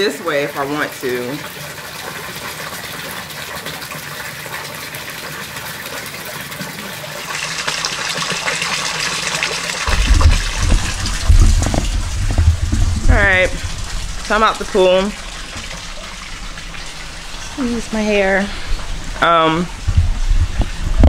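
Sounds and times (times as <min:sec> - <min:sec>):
water rushing from small waterfall: 0:05.8 - 0:18.3
loud low rumbling bumps: 0:09.9 - 0:21.0.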